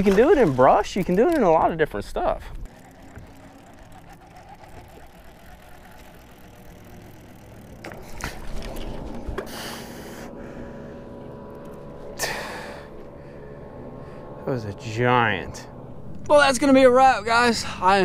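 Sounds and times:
boat motor hum: 0:00.0 - 0:18.0
wind and water: 0:00.0 - 0:18.0.

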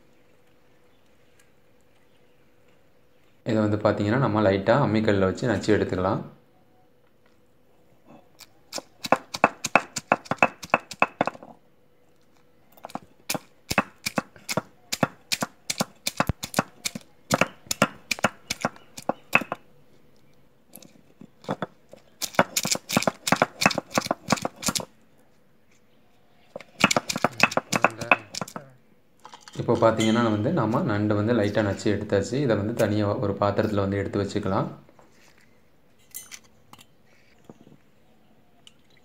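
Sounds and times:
stone roller knocking on stone slab: 0:09.1 - 0:11.6, 0:22.4 - 0:24.8, 0:26.6 - 0:28.6.

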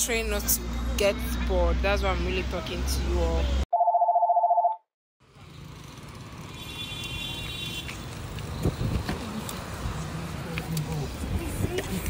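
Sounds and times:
street background noise: 0:00.0 - 0:03.7, 0:05.2 - 0:12.0
brief high tone: 0:03.7 - 0:04.8.

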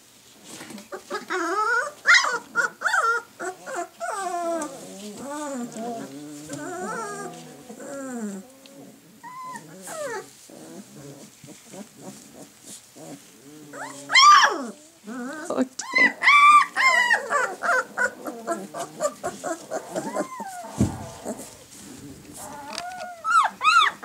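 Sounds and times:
puppies whining and crying: 0:00.9 - 0:24.0
puppy yips: 0:22.5 - 0:24.0.

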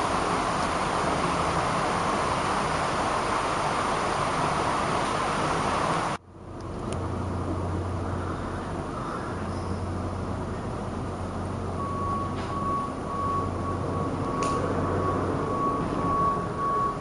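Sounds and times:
rushing hiss-like noise: 0:00.0 - 0:06.2.

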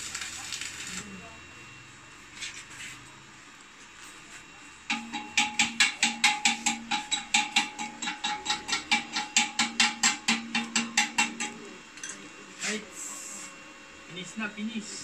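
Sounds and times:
welding arc crackling: 0:00.0 - 0:01.4, 0:04.9 - 0:11.6
welder hum: 0:00.0 - 0:03.4, 0:04.4 - 0:15.0.

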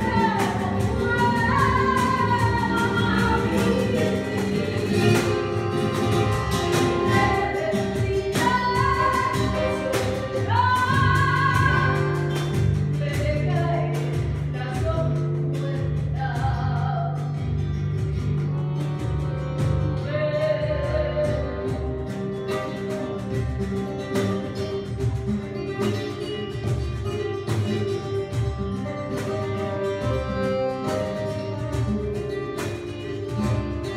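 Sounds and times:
person singing: 0:00.0 - 0:05.9, 0:06.8 - 0:12.2
accordion: 0:00.0 - 0:33.9
strummed acoustic guitar: 0:00.0 - 0:33.9.

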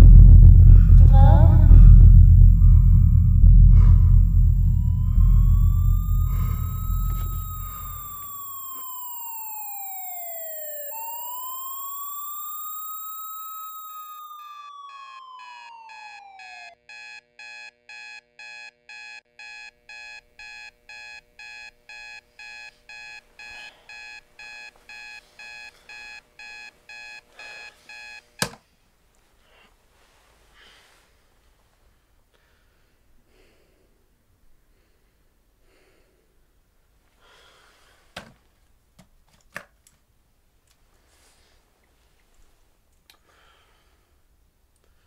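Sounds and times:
sharp knock: 0:00.0 - 0:08.0
sweeping electronic tone: 0:00.0 - 0:16.5
digital alarm clock beeping: 0:05.1 - 0:23.1.

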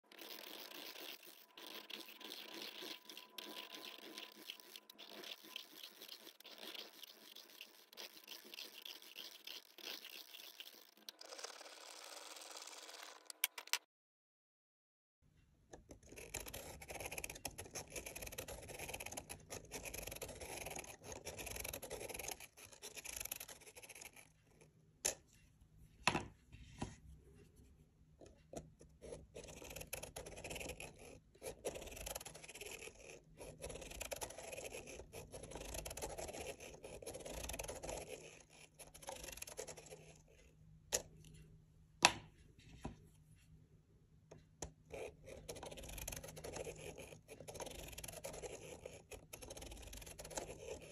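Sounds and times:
marker scratching on paper: 0:00.1 - 0:13.0, 0:16.2 - 0:24.3, 0:29.0 - 0:40.2, 0:44.9 - 0:50.9.

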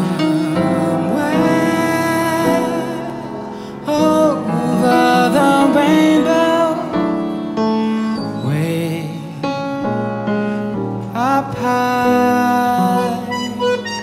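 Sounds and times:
man singing a ballad: 0:00.0 - 0:14.0
piano accordion: 0:00.0 - 0:14.0.

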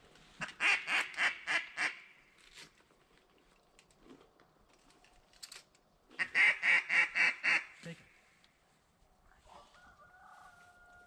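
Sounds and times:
faint marsh background: 0:00.0 - 0:11.0
duck quacks: 0:06.2 - 0:07.8.

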